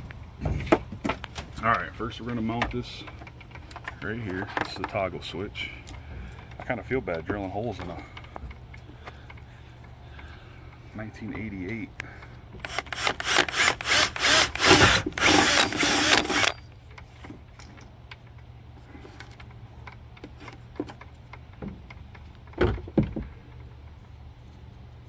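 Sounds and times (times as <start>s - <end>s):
cordless drill boring: 12.6s - 16.6s.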